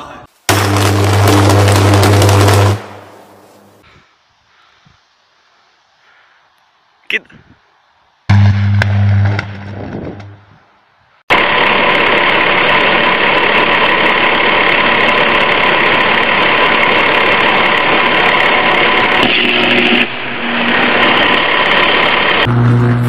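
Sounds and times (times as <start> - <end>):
electrical arc crackling buzz: 0.4 - 3.8, 8.3 - 10.6, 11.3 - 23.0
deep steady hum: 0.5 - 3.8, 8.3 - 10.6, 19.8 - 23.0.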